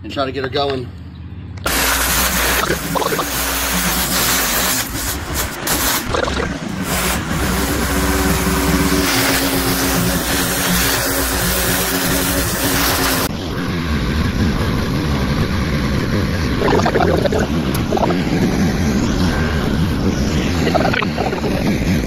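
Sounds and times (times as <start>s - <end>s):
water spray hissing on metal: 1.7s - 6.1s, 6.7s - 13.3s
pressure washer engine running: 1.7s - 13.3s, 15.8s - 22.0s.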